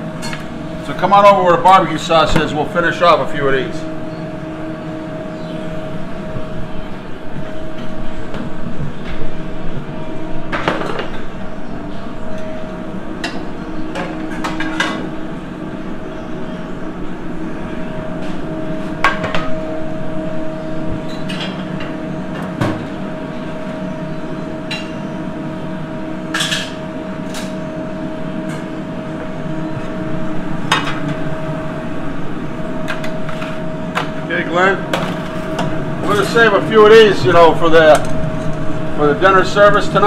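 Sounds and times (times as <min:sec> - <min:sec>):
hum of kitchen equipment: 0:00.0 - 0:40.0.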